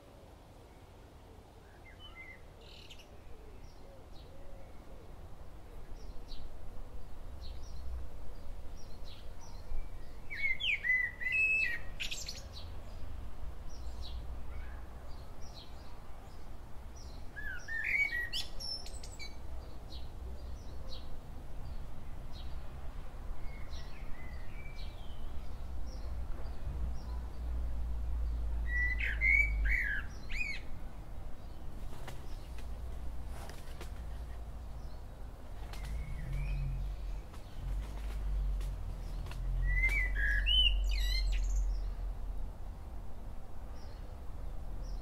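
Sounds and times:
birds chirping and singing: 0:34.8 - 0:41.9.

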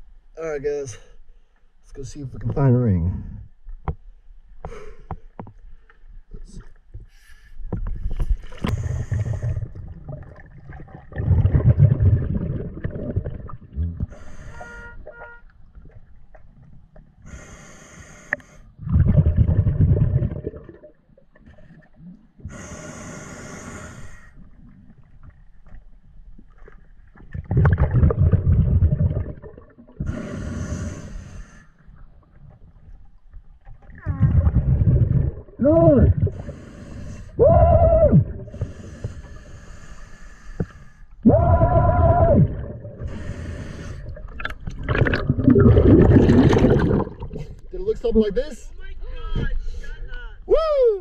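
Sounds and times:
diver breathing through regulator: 0:07.1 - 0:09.8, 0:14.0 - 0:15.0, 0:17.2 - 0:18.8, 0:22.4 - 0:24.4, 0:30.0 - 0:31.8, 0:36.2 - 0:37.4, 0:38.4 - 0:41.2, 0:42.9 - 0:44.3.

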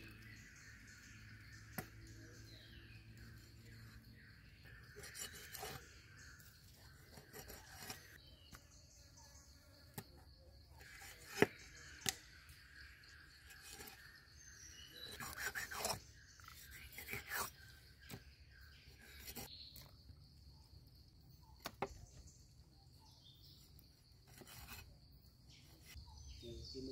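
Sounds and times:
cleaver scraping through fish: 0:15.0 - 0:18.2.

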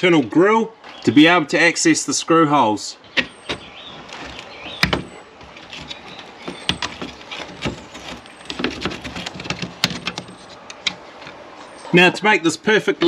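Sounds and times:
plastic clicks and scrapes: 0:03.2 - 0:11.4.

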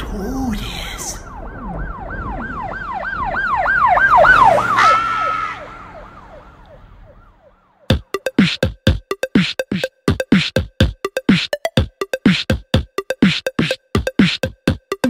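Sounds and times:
siren wailing: 0:01.2 - 0:07.9
electronic drum machine beat: 0:07.9 - 0:15.0.

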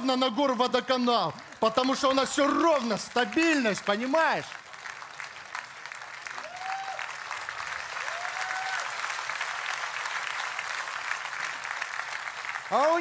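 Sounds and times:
audience applauding: 0:00.0 - 0:13.0
calls from crowd: 0:06.4 - 0:09.3.

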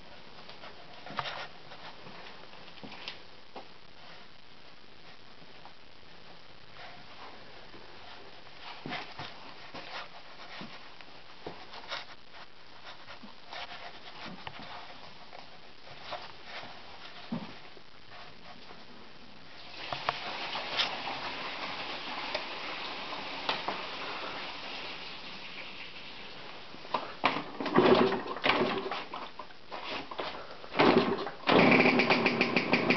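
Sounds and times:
hiss: 0:19.6 - 0:26.3.

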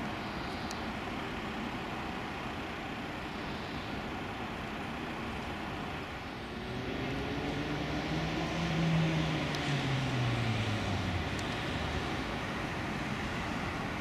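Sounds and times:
city traffic noise: 0:00.0 - 0:14.0
vehicle passing: 0:06.3 - 0:14.0.

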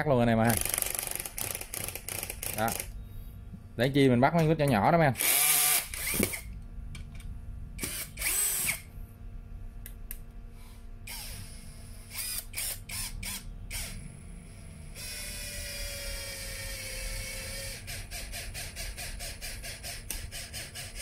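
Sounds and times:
cordless screwdriver whine: 0:05.2 - 0:06.5, 0:07.8 - 0:08.9, 0:11.1 - 0:18.6
screwdriver trigger blips: 0:05.2 - 0:06.5, 0:07.8 - 0:08.8.

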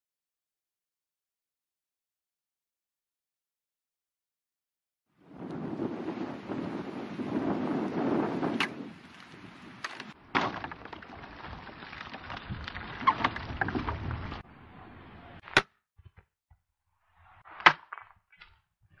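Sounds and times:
noisy rustle: 0:05.2 - 0:10.2.

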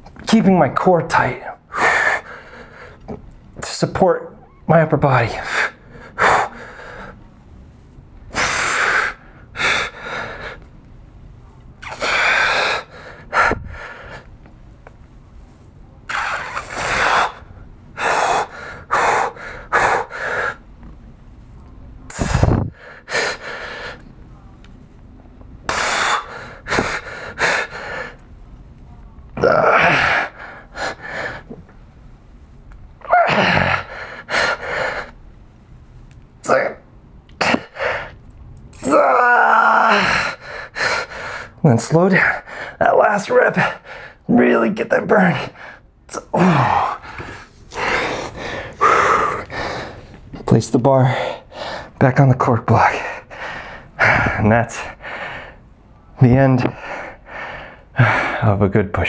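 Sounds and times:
man breathing hard: 0:01.7 - 0:03.1, 0:05.3 - 0:07.2, 0:08.3 - 0:10.7, 0:11.8 - 0:14.3, 0:16.1 - 0:20.6, 0:22.1 - 0:24.1, 0:25.7 - 0:28.2, 0:29.6 - 0:31.6, 0:33.3 - 0:35.2, 0:37.4 - 0:38.2, 0:39.9 - 0:41.6, 0:42.2 - 0:42.8, 0:43.6 - 0:44.3, 0:45.3 - 0:50.2, 0:51.0 - 0:52.0, 0:52.9 - 0:55.7, 0:56.6 - 0:58.5
man grunting: 0:29.4 - 0:30.4, 0:33.1 - 0:33.9, 0:44.3 - 0:47.0.

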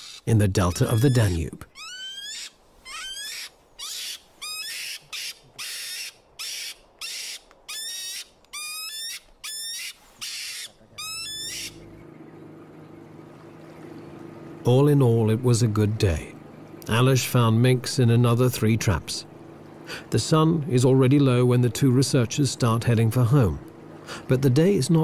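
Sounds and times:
mink hissing: 0:00.0 - 0:11.8
mink squealing: 0:00.0 - 0:11.8
low steady hum: 0:10.7 - 0:25.0.

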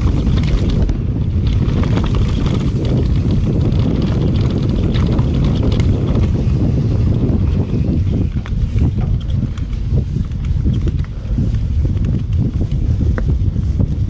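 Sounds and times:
tyres rolling over dirt and leaves: 0:00.0 - 0:11.3
bike clicks and rattles: 0:00.0 - 0:14.0
wind buffeting microphone: 0:00.0 - 0:14.0.

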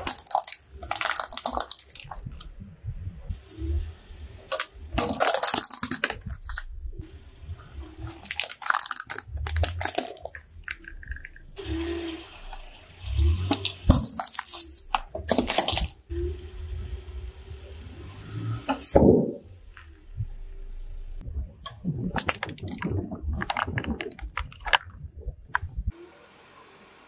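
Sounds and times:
plastic toys cracking under tyre: 0:00.0 - 0:02.5, 0:04.5 - 0:06.7, 0:08.2 - 0:11.4, 0:22.2 - 0:25.6.

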